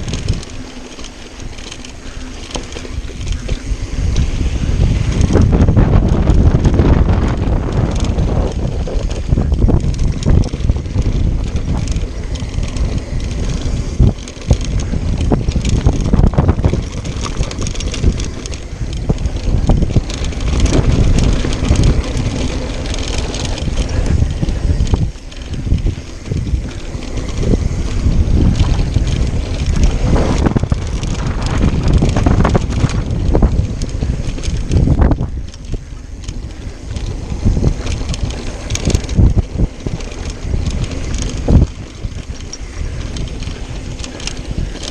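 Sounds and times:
bike rattling over bumps: 0:00.0 - 0:44.9
tyres on dirt: 0:00.0 - 0:44.9
wind buffeting microphone: 0:00.0 - 0:44.9.

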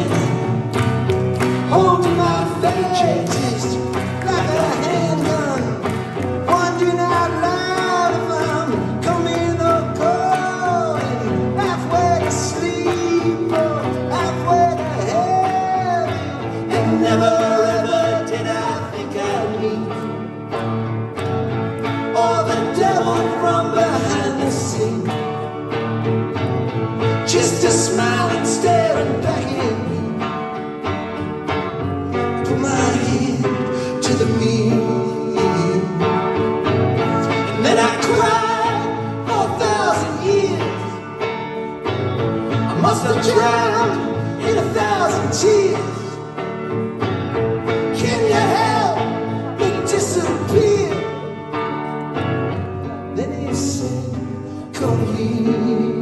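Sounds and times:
electric guitars: 0:00.0 - 0:56.0
people singing: 0:06.6 - 0:20.1, 0:22.2 - 0:25.0, 0:37.1 - 0:41.1, 0:42.7 - 0:46.2, 0:47.8 - 0:51.2.

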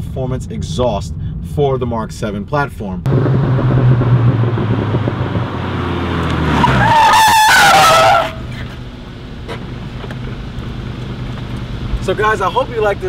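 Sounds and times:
car engine running: 0:03.1 - 0:13.0
tyres squealing: 0:06.3 - 0:09.7.

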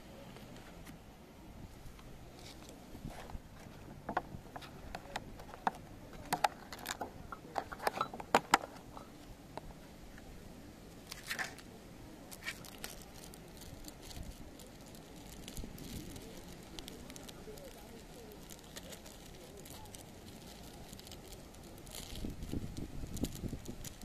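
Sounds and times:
plastic lid clicking and crinkling: 0:03.7 - 0:09.1.

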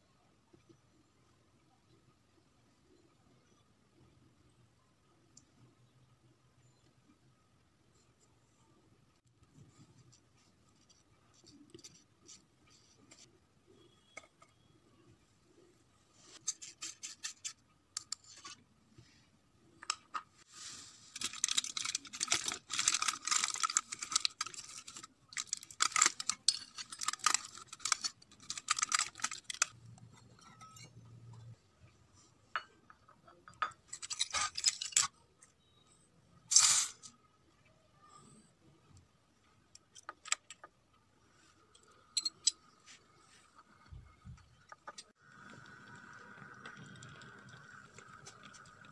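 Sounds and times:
aluminium foil crinkling: 0:20.5 - 0:29.8.

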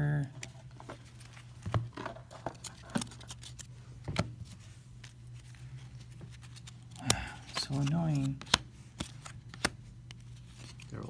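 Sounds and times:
cards rustling: 0:00.2 - 0:11.0
cards snapping: 0:02.4 - 0:04.2, 0:06.1 - 0:11.0.

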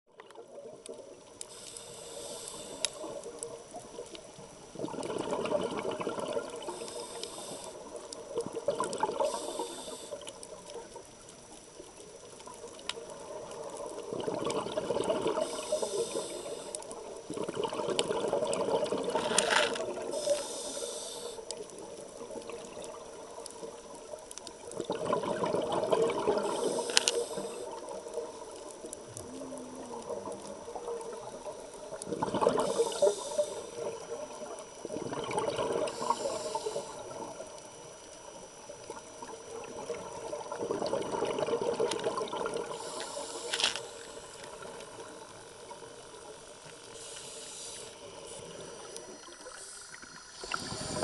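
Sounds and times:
regulator hissing: 0:01.4 - 0:03.4, 0:06.6 - 0:08.1, 0:09.2 - 0:10.3, 0:15.4 - 0:17.0, 0:19.7 - 0:21.5, 0:26.3 - 0:27.8, 0:32.6 - 0:34.4, 0:35.8 - 0:37.3, 0:42.6 - 0:44.7, 0:46.3 - 0:51.0
underwater bubble bursts: 0:02.8 - 0:20.3, 0:21.5 - 0:43.0, 0:48.0 - 0:51.0.

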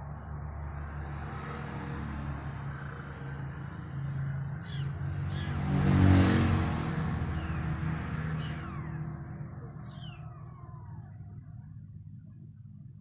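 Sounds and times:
vehicle engine running: 0:04.6 - 0:13.0
kitten mewing: 0:07.3 - 0:11.9
low hum: 0:07.3 - 0:13.0.

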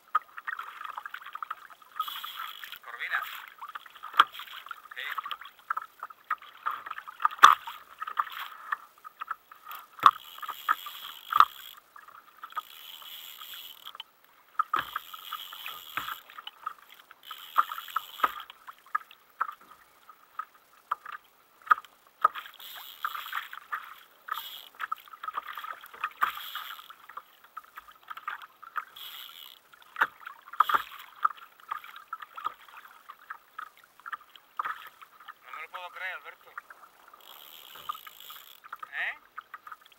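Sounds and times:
water slapping against kayak hull: 0:00.0 - 0:13.9, 0:14.5 - 0:19.8, 0:20.4 - 0:39.9
fishing reel being cranked: 0:00.5 - 0:18.6, 0:21.7 - 0:27.4, 0:28.2 - 0:32.6, 0:37.0 - 0:39.9.

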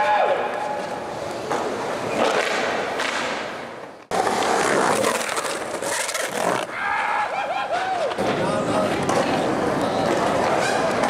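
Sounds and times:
skateboard rolling on concrete: 0:00.7 - 0:11.0
skateboard grinding on brick: 0:04.1 - 0:06.7.

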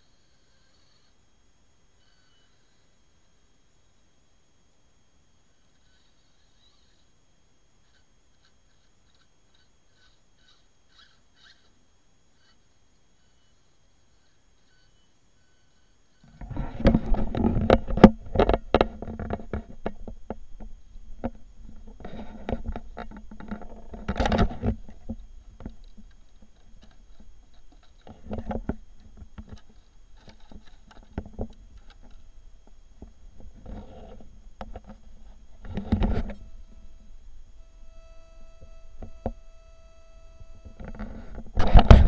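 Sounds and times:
handling rustles knocks and clicks: 0:40.6 - 0:42.0.

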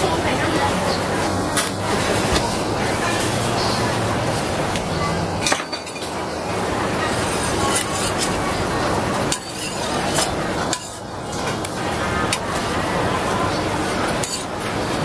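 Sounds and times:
metal spatula scraping griddle: 0:07.1 - 0:08.4, 0:09.2 - 0:11.5.

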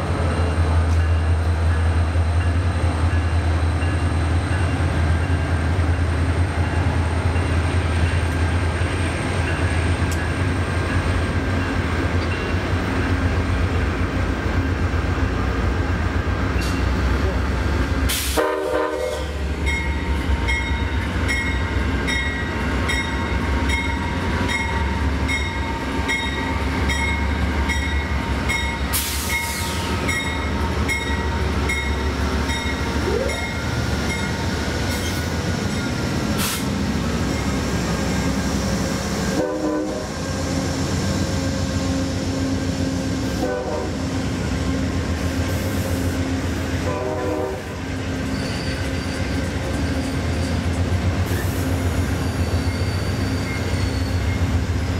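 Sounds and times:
deep locomotive engine rumble: 0:00.0 - 0:54.9
locomotive bell ringing: 0:00.4 - 0:13.2, 0:19.1 - 0:36.2, 0:48.2 - 0:51.0, 0:52.2 - 0:54.6.

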